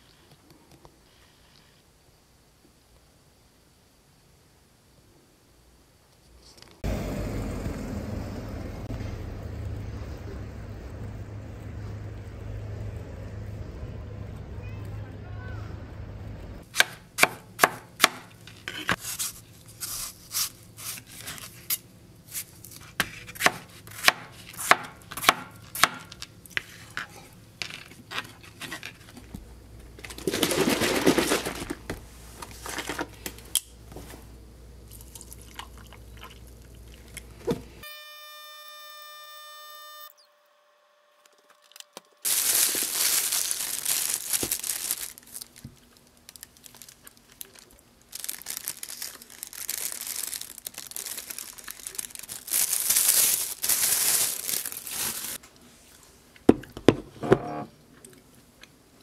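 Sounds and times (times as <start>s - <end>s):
plastic bag crinkling: 41.7s - 55.4s.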